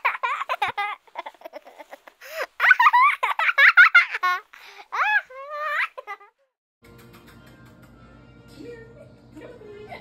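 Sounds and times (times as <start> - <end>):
person giggling and squealing: 0.0 - 6.5.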